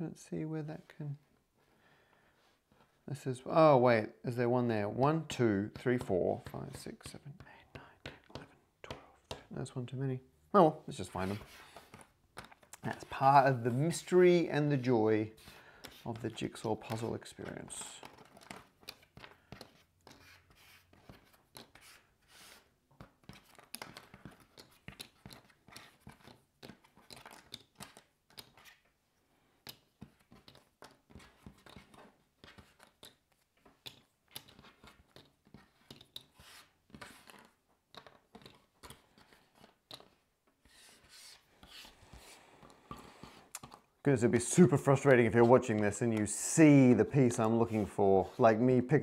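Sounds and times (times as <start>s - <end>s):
jigsaw pieces clicking on wood: 23.5s - 28.6s, 29.6s - 40.2s.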